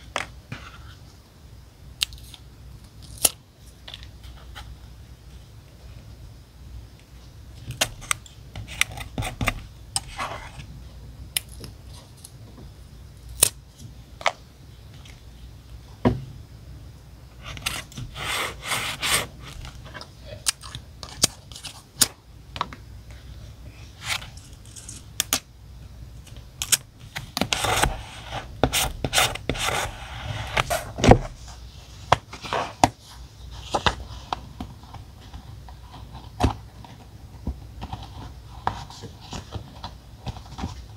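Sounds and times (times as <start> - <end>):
paper rustling and scraping: 17.4 - 20.4, 27.2 - 37.0.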